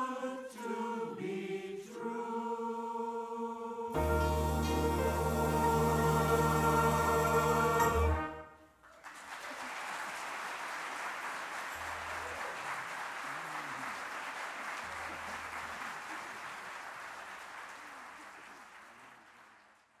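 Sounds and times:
audience applauding: 8.8 - 20.0.

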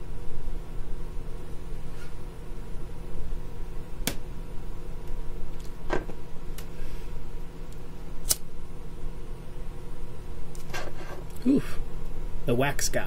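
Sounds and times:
steady low hum: 0.0 - 13.0
lighter clicking: 8.2 - 8.5.

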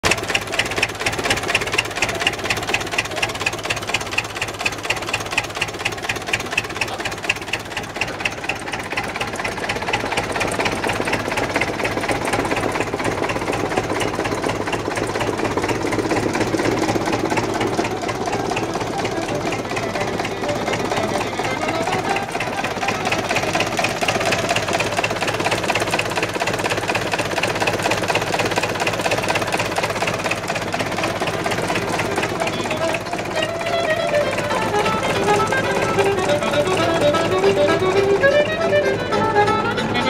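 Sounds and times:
diesel tractor engine idling: 0.0 - 40.0.

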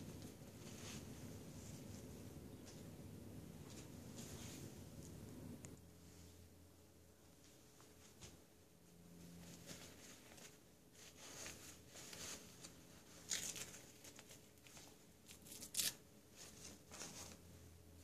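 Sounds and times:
diaper rustling and crinkling: 9.4 - 17.5.

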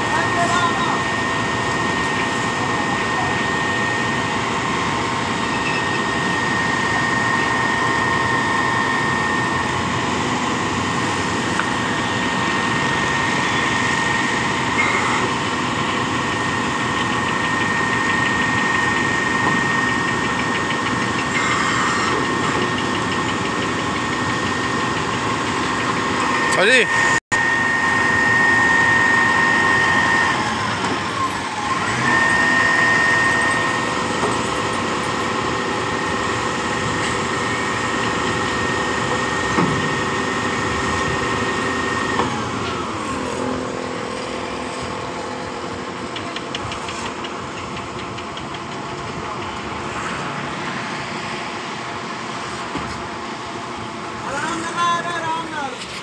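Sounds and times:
diesel engine and hydraulic pump: 0.0 - 56.0.

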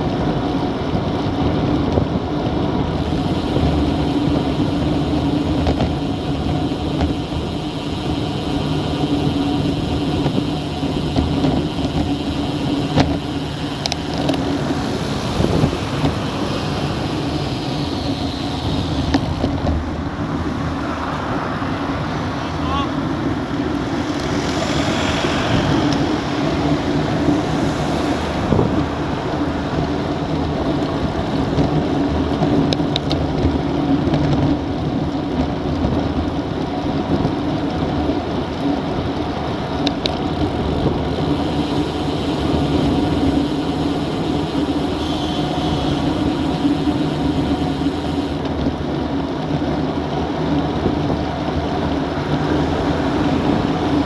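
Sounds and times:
bicycle tyre and road noise: 0.0 - 54.0
wind rush on microphone: 0.0 - 54.0
faint ticks: 10.1 - 14.5.

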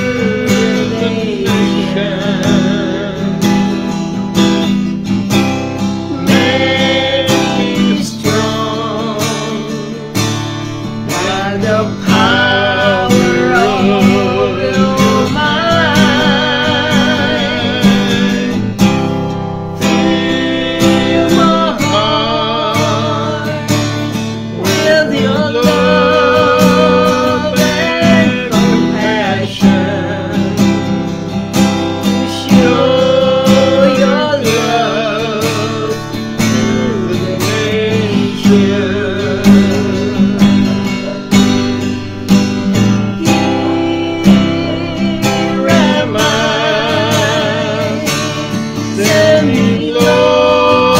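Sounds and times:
man singing: 0.0 - 50.9
strummed acoustic guitar: 0.0 - 50.9
woman singing: 6.1 - 10.0, 11.1 - 18.8, 24.6 - 30.8, 43.1 - 50.9.

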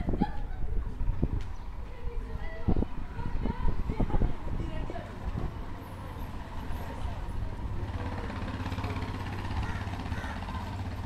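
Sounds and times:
street noise: 0.0 - 11.0
vehicle engine humming: 2.9 - 11.0.

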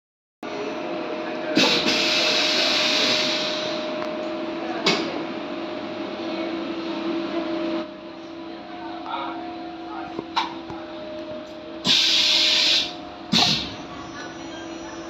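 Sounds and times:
air hissing: 1.6 - 3.8, 11.8 - 13.8.

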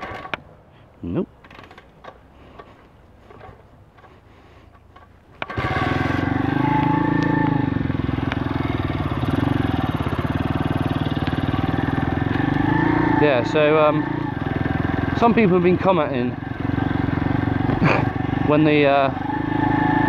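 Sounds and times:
motorbike engine running: 5.4 - 20.0.

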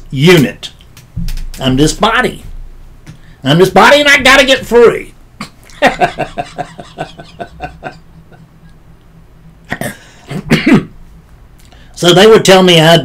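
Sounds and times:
man laughing softly: 5.4 - 8.7.

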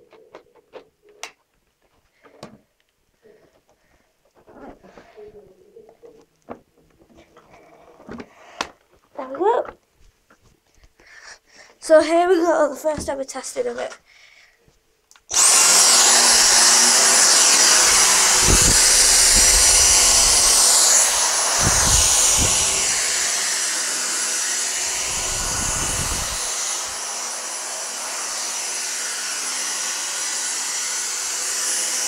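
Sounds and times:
vacuum cleaner motor whine: 15.3 - 32.0.

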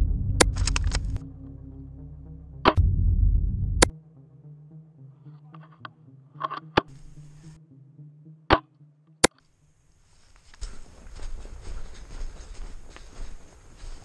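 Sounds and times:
faint low hum: 0.0 - 3.9
sharp snaps: 0.4 - 1.2.

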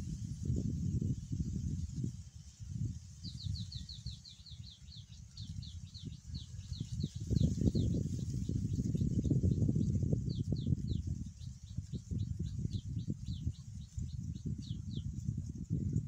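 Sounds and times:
wind buffeting microphone: 0.0 - 16.0
bird chirping: 3.2 - 15.6.

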